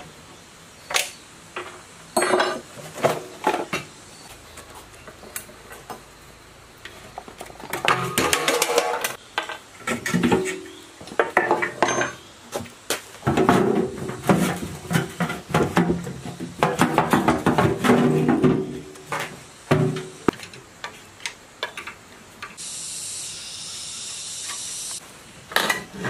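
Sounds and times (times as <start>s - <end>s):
metal tools clinking and clanking: 11.3s - 12.2s.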